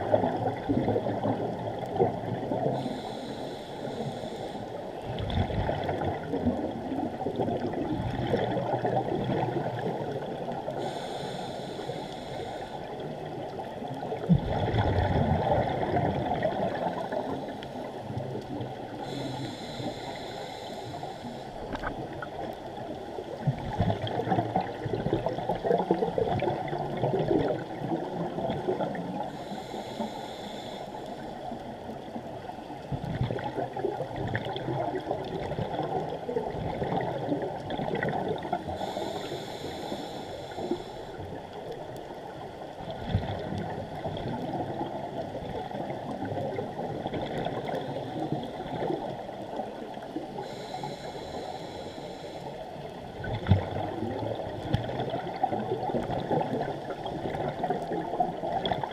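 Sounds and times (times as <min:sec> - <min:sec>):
underwater gurgling and bubbles: 0:00.0 - 0:58.9
diver breathing hiss: 0:02.6 - 0:04.9, 0:10.8 - 0:13.0, 0:18.9 - 0:21.7, 0:29.2 - 0:31.6, 0:38.6 - 0:41.3, 0:50.3 - 0:52.9.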